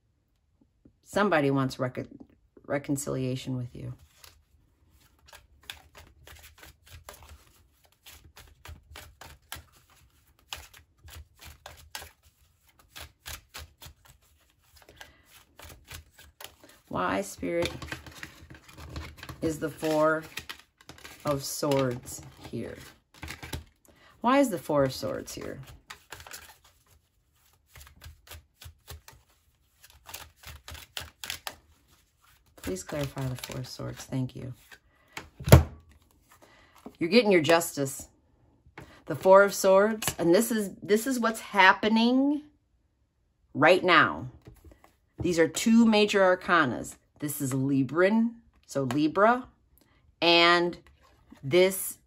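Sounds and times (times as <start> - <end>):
cards being shuffled: 4.0 - 23.8, 24.6 - 37.7, 39.1 - 40.2.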